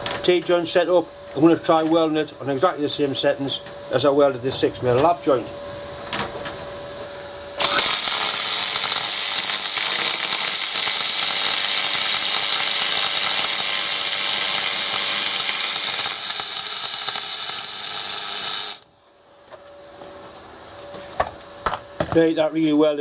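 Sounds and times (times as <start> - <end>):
welding arc hissing: 7.6 - 18.9.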